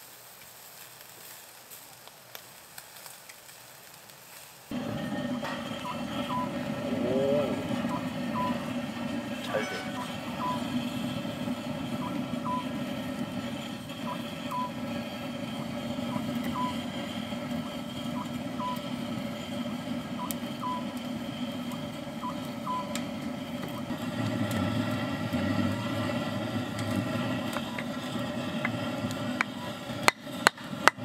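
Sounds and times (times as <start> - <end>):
electronic beeping: 5.6 - 21.0, 21.6 - 23.0.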